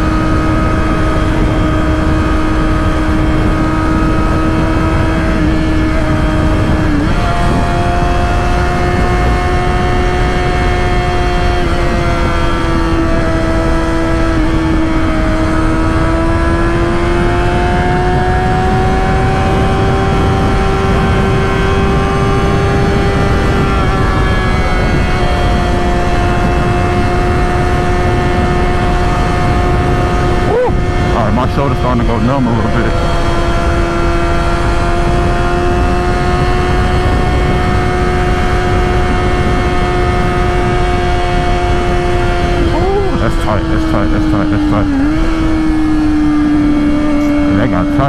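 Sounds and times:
motorcycle engine cruising: 0.0 - 48.0
wind rush: 0.0 - 48.0.

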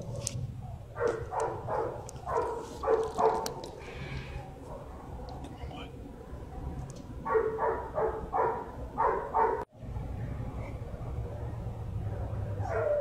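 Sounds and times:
dog yipping: 12.6 - 13.0.

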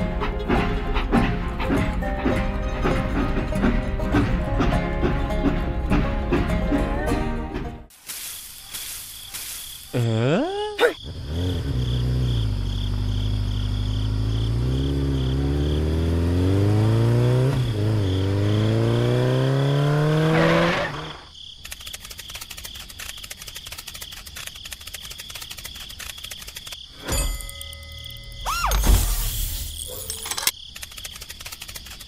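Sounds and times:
motorcycle engine revving: 11.0 - 21.3.

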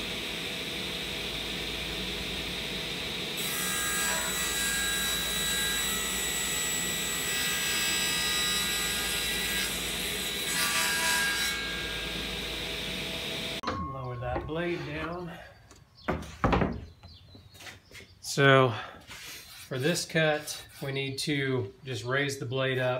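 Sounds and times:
table saw cutting plywood: 0.0 - 13.6.

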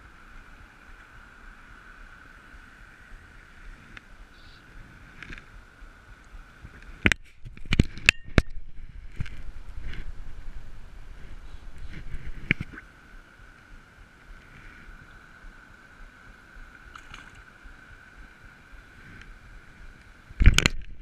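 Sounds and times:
sharp clicks and knocks: 20.4 - 21.0.

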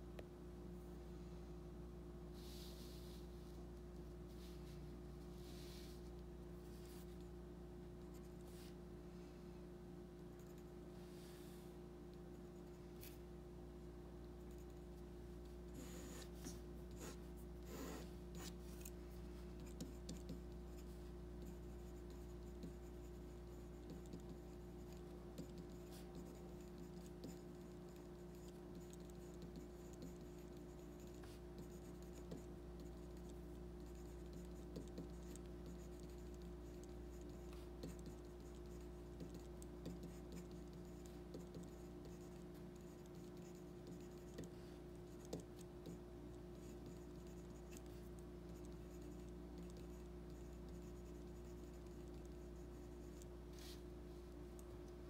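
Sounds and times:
steady low hum: 0.0 - 55.0
pencil scratching on paper: 15.5 - 53.8
small pencil ticks: 19.6 - 53.3.

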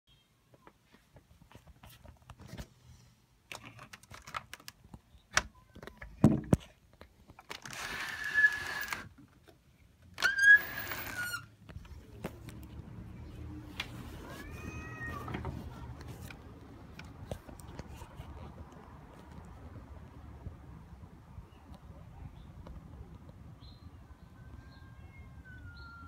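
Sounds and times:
cat yowling: 14.2 - 15.4.

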